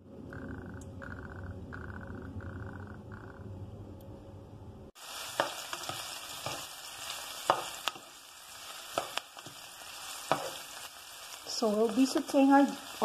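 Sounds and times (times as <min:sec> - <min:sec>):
low hum: 0:00.0 - 0:05.0
onion and garlic sizzling in oil: 0:05.0 - 0:13.0.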